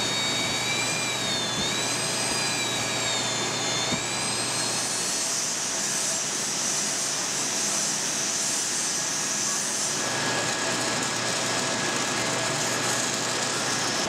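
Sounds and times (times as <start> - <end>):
angle grinder grinding steel: 0.0 - 14.0.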